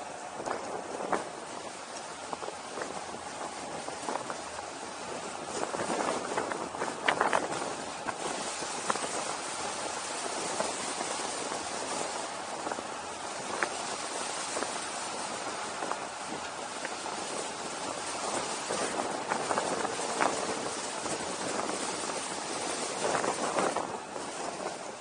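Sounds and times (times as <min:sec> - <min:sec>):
wind hiss on microphone: 0:00.0 - 0:25.0.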